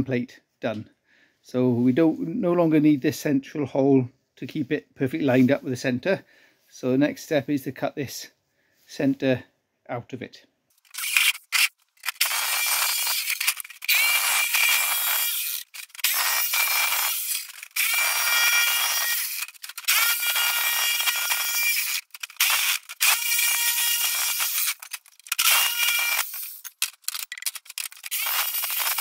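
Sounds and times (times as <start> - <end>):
jigsaw cutting steel: 10.8 - 29.0.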